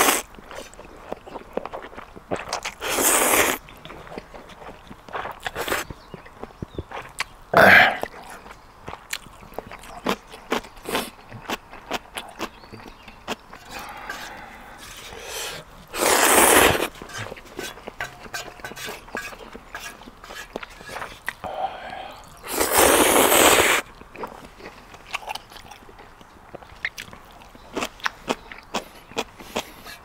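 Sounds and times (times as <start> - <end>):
chewing and clicking: 0.3 - 2.8, 3.6 - 7.4, 8.0 - 15.7, 23.8 - 30.0
noodle slurps: 2.8 - 3.6, 13.7 - 17.8, 22.1 - 23.8.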